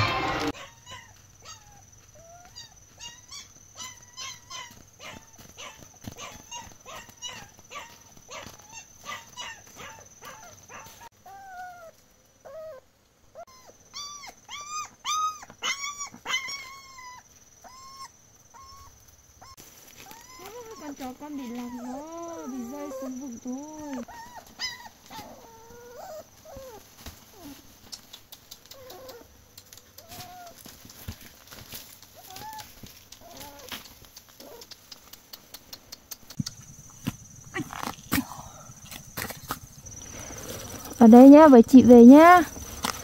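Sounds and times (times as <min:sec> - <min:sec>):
dog whimpering and yelping: 0:00.0 - 0:12.8, 0:13.4 - 0:27.6.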